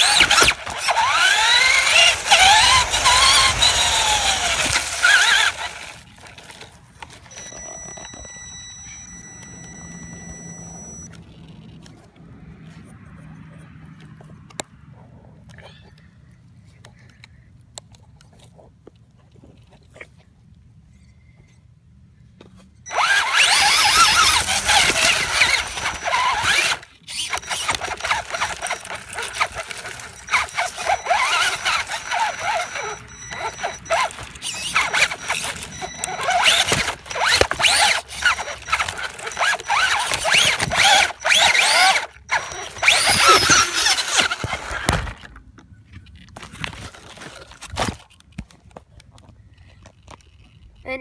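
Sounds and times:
toy truck electric motor whining: 0.0 - 11.8, 22.9 - 45.4.

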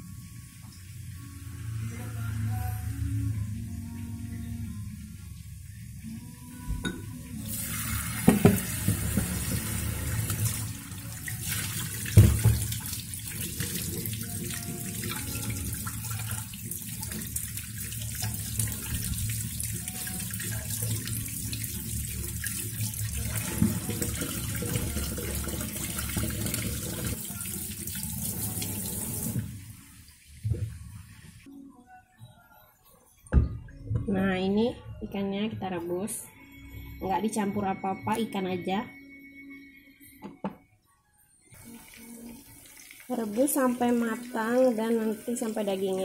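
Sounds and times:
tap water splashing into sink: 8.0 - 10.6, 11.4 - 19.5.

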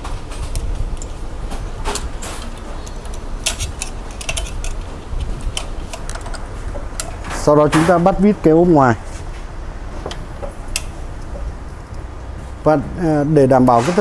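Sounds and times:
steady low hum: 0.0 - 14.0
metal cover clicks and rattles: 0.4 - 8.0.

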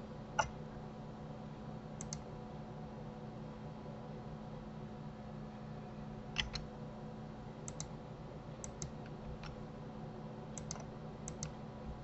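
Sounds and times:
faint electrical hum: 0.0 - 12.0.

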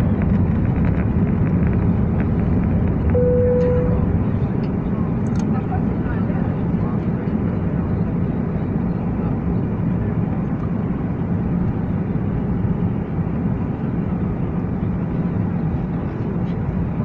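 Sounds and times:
airliner cabin rumble: 0.0 - 17.0.

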